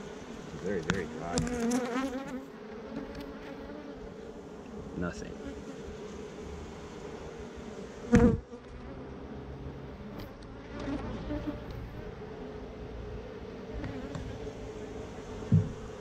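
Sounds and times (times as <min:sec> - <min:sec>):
honeybees buzzing: 0:00.0 - 0:16.0
loud thump: 0:15.5 - 0:15.9
soft knocks: 0:15.5 - 0:15.9.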